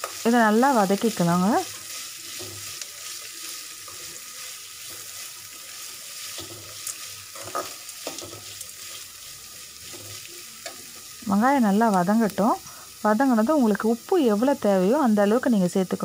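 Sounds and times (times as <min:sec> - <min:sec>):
onions sizzling in hot oil: 0:00.0 - 0:16.0
metal spoon scraping pan: 0:01.6 - 0:11.1.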